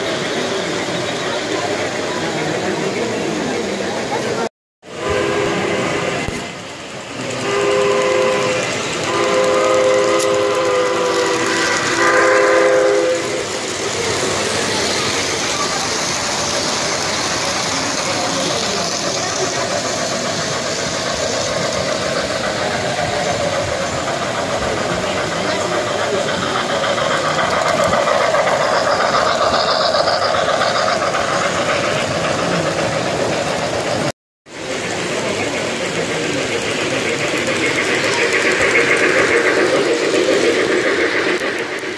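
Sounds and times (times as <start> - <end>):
model trains running: 0.0 - 41.9
model locomotive whistle blasts: 4.9 - 6.4, 7.3 - 13.6.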